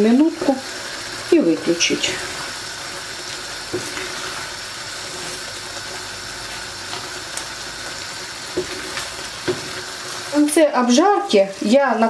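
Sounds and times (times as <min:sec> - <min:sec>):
sauce simmering in frying pan: 0:00.0 - 0:12.0
spatula tapping pan: 0:03.7 - 0:04.3, 0:08.5 - 0:09.8.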